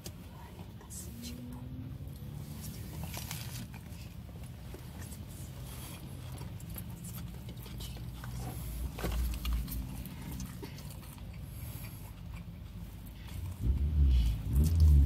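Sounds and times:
person chewing sandwich: 0:05.1 - 0:13.6
low rumble: 0:13.3 - 0:15.0.

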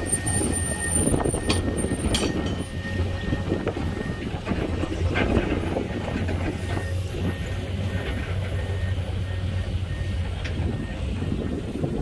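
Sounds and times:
crackly rumble: 0:00.0 - 0:09.4
heavy diesel engines running: 0:00.0 - 0:12.0.

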